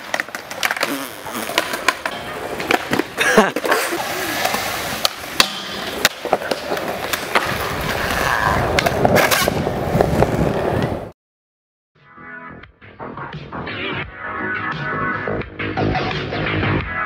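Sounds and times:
skateboard clacks: 0:00.0 - 0:00.9, 0:01.5 - 0:03.7, 0:04.4 - 0:11.0
skateboard wheels rolling on concrete: 0:00.0 - 0:11.1.

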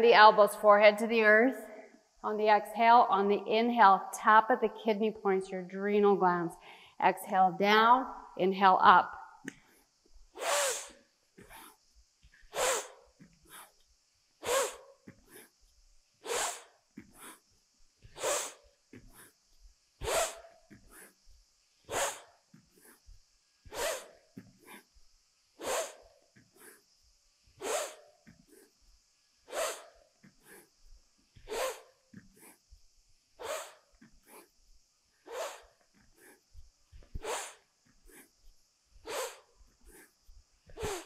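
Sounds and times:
person inhaling: 0:06.6 - 0:07.0
person exhaling forcefully: 0:10.4 - 0:11.8, 0:12.5 - 0:13.7, 0:14.4 - 0:15.5, 0:16.2 - 0:17.4, 0:18.1 - 0:19.3, 0:20.0 - 0:21.1, 0:21.9 - 0:23.0, 0:23.7 - 0:24.8, 0:25.6 - 0:26.0, 0:27.6 - 0:28.0, 0:29.5 - 0:30.7, 0:31.4 - 0:32.6, 0:33.4 - 0:34.4, 0:37.1 - 0:38.3, 0:39.0 - 0:40.1, 0:40.7 - 0:41.0.

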